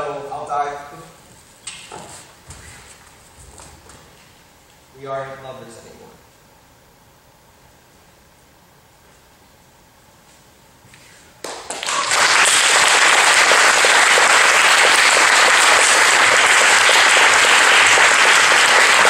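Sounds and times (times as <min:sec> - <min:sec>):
audience clapping: 0:11.4 - 0:19.0.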